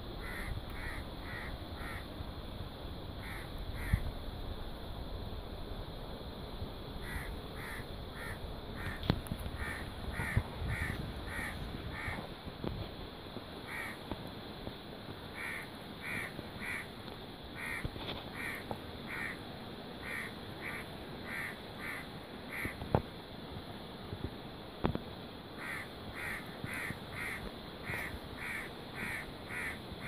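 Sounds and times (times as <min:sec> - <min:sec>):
crow cawing: 0:00.2 - 0:02.1, 0:03.2 - 0:04.0, 0:07.0 - 0:09.0, 0:09.6 - 0:12.2, 0:13.7 - 0:14.0, 0:15.4 - 0:16.9, 0:17.6 - 0:19.4, 0:20.0 - 0:22.8, 0:25.6 - 0:29.8.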